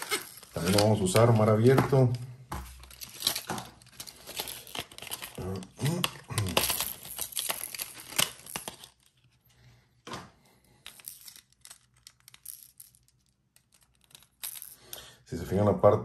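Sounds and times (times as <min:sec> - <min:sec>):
packaging crinkling and rustling: 0:00.0 - 0:02.1, 0:02.7 - 0:09.3.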